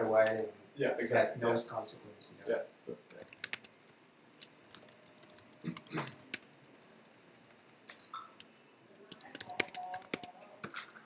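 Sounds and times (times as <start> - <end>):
typing on computer keyboard: 2.4 - 11.0.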